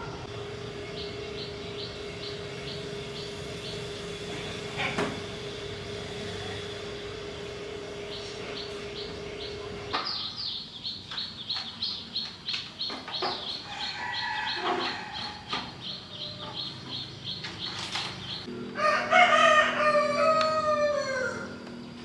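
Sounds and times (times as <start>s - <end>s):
small bird chirping: 0.0s - 4.2s, 8.0s - 18.5s
rooster crowing: 13.6s - 15.6s, 18.7s - 21.7s.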